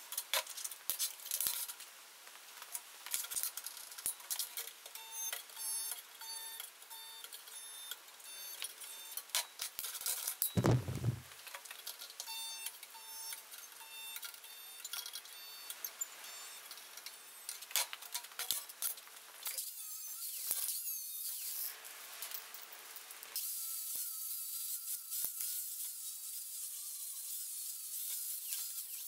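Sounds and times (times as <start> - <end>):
faint steady hum: 10.6 - 11.2.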